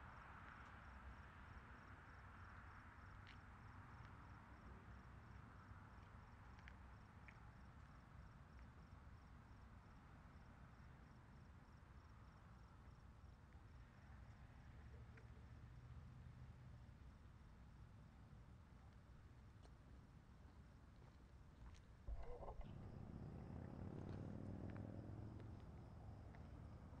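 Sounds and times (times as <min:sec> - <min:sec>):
cricket chirping: 0:00.0 - 0:19.7, 0:20.4 - 0:27.0.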